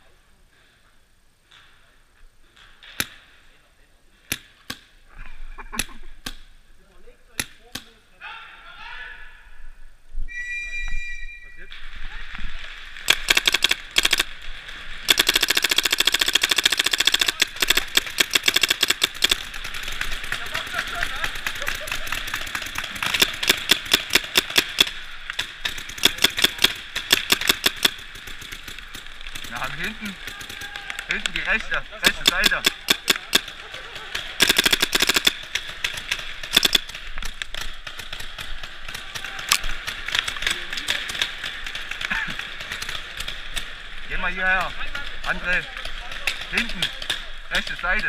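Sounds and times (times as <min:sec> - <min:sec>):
paintball markers firing: 0:13.1 - 0:14.3, 0:15.1 - 0:43.8.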